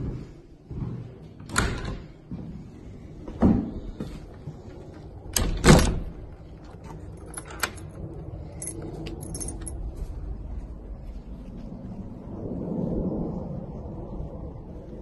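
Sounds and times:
keys jingling: 0:06.6 - 0:09.9.

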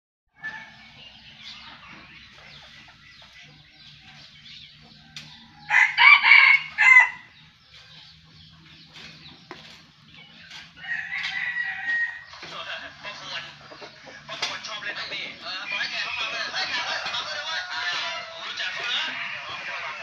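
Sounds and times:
faint clucks and chirps: 0:00.4 - 0:20.0
rooster crowing: 0:05.3 - 0:07.3, 0:10.8 - 0:12.2.

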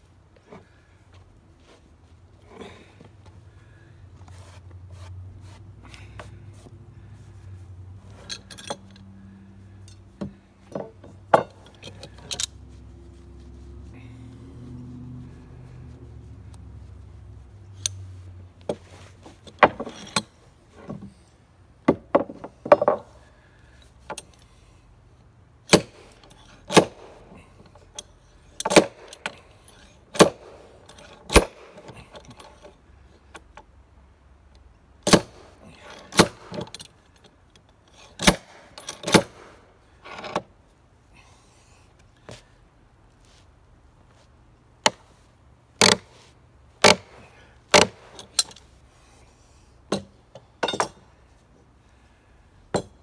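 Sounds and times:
metal tool clinking on wood: 0:08.1 - 0:09.1, 0:09.7 - 0:12.6, 0:17.7 - 0:18.1, 0:19.4 - 0:21.0, 0:25.7 - 0:33.6, 0:35.1 - 0:39.5, 0:46.8 - 0:48.7, 0:49.9 - 0:51.1.

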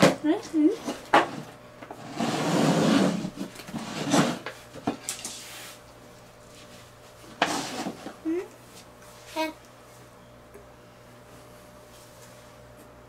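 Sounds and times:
cups scraping on tabletop: 0:00.7 - 0:04.6, 0:07.3 - 0:08.2.

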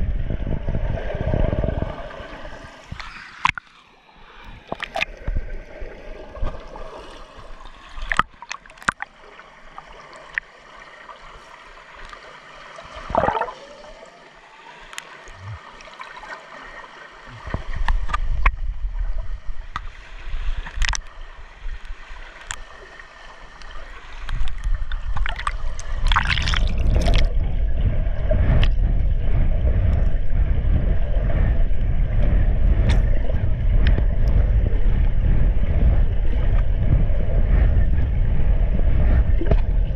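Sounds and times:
churning water rumble: 0:00.0 - 0:39.9
water gurgling and sloshing: 0:00.0 - 0:39.9
sharp clicks and splashes: 0:02.9 - 0:03.8, 0:04.4 - 0:05.4, 0:07.4 - 0:10.5, 0:17.3 - 0:18.7, 0:20.6 - 0:22.7, 0:23.5 - 0:27.4, 0:32.2 - 0:34.4, 0:39.3 - 0:39.9.

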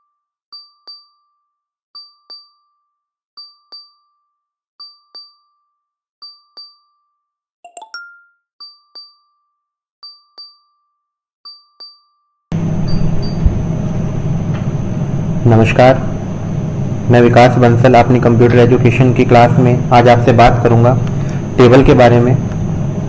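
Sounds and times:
brief chime: 0:10.1 - 0:13.5.

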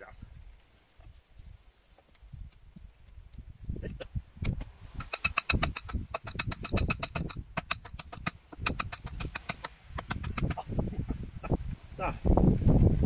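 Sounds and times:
hatchet knocking wooden stake: 0:04.0 - 0:10.7.

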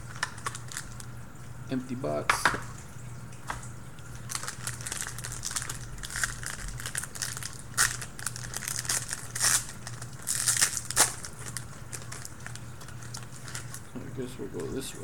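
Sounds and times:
card pack wrapper crinkling and tearing: 0:00.0 - 0:01.1, 0:04.1 - 0:13.9
low steady hum: 0:00.0 - 0:15.0.

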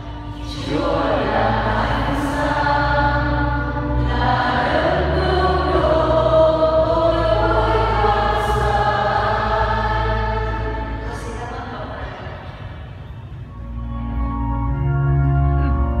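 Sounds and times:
congregation singing: 0:00.0 - 0:12.4.

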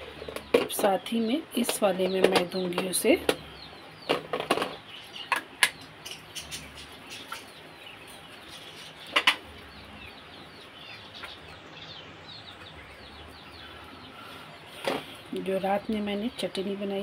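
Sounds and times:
birds chirping: 0:00.0 - 0:17.0
plastic containers clicking and knocking: 0:01.6 - 0:03.4, 0:04.0 - 0:05.8.

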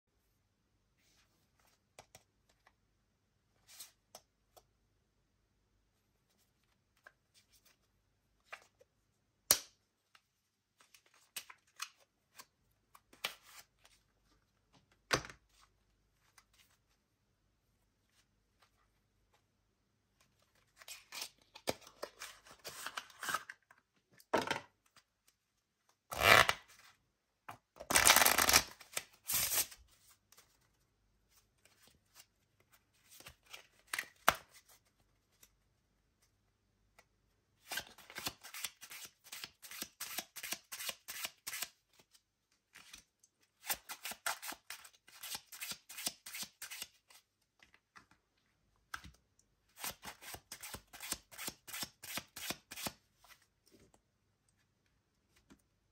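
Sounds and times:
cards being shuffled: 0:27.8 - 0:30.7.

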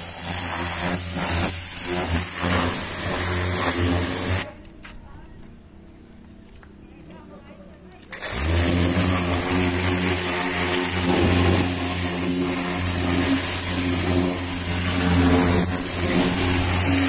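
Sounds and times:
water jet hissing: 0:00.0 - 0:04.5, 0:08.1 - 0:17.0
pressure washer pump humming: 0:00.0 - 0:04.6, 0:08.1 - 0:17.0.

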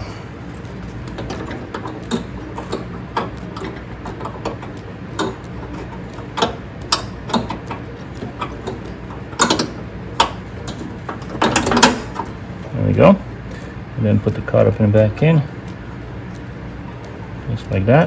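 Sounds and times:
metal clanks: 0:01.1 - 0:12.4.

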